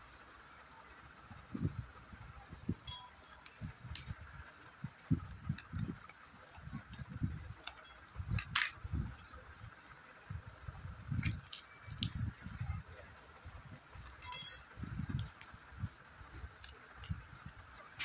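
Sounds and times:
plastic clicks and crinkles: 0:05.2 - 0:09.8, 0:11.1 - 0:12.6, 0:16.4 - 0:18.0.

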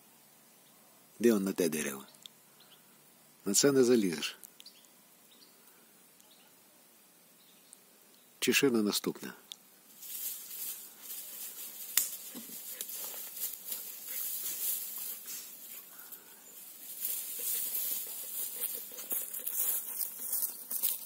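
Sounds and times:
small crackles: 0:09.4 - 0:21.0
rustling in dry leaves: 0:09.8 - 0:21.0.

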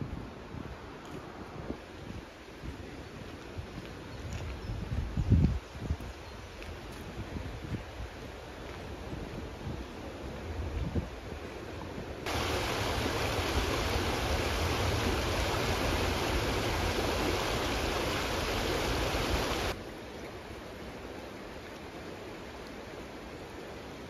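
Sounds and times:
river rushing over rocks: 0:12.3 - 0:24.0.

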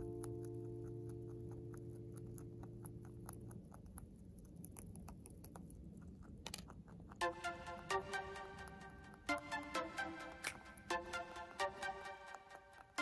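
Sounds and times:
rabbit chewing hay: 0:00.0 - 0:07.3.

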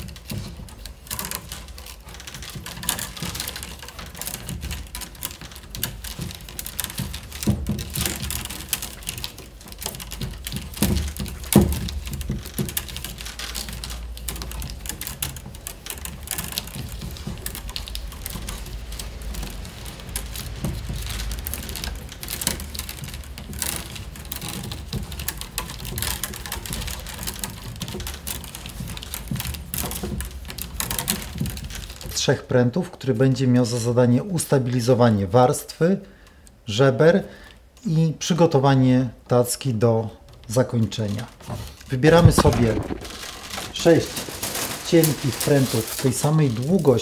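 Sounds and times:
wicker rods clicking and rustling: 0:00.0 - 0:47.0
loud knock: 0:42.1 - 0:43.4.

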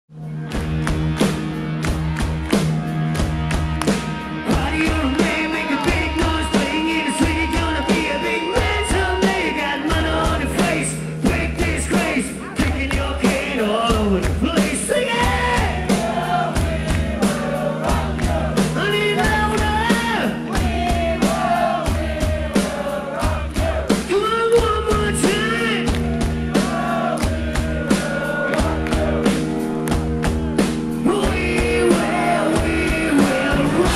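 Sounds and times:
electric guitar: 0:00.1 - 0:23.8, 0:24.4 - 0:33.9
bass guitar: 0:00.1 - 0:33.9
drums: 0:00.1 - 0:33.9
man singing: 0:04.4 - 0:25.9, 0:31.0 - 0:33.9.

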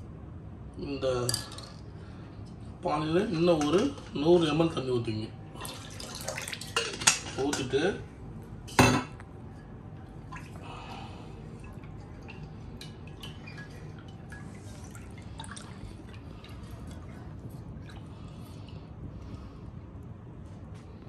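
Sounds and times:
steady low hum: 0:00.0 - 0:21.0
water dripping into bowl: 0:11.5 - 0:18.8.

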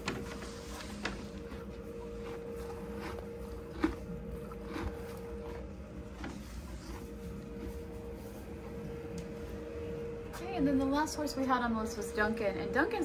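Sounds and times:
horse chewing hay: 0:00.0 - 0:09.9
steady hum: 0:00.0 - 0:13.0.

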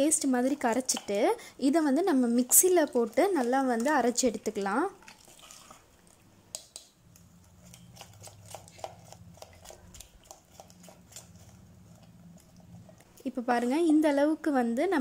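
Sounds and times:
ladle scraping metal bowl: 0:07.4 - 0:13.0.

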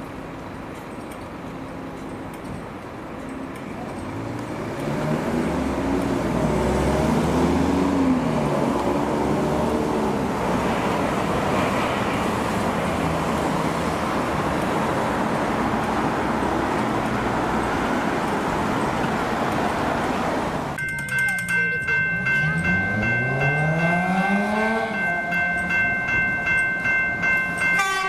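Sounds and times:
passing traffic rumble: 0:00.0 - 0:28.0
engine pitch rising and falling: 0:04.4 - 0:10.7, 0:22.0 - 0:26.5.

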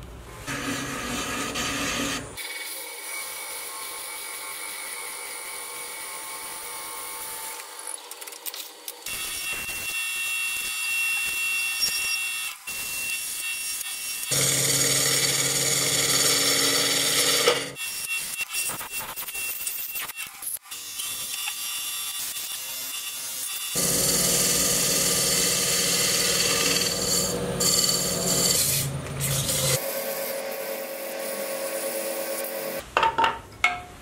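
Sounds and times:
drill bit boring into wood: 0:14.3 - 0:17.7, 0:23.7 - 0:28.7
wood lathe humming: 0:14.3 - 0:17.7, 0:23.8 - 0:32.8.

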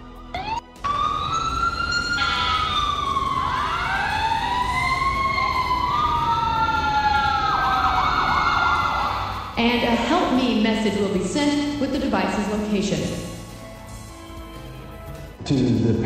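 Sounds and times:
sirens wailing: 0:00.2 - 0:14.8
siren yelp: 0:00.3 - 0:10.1.

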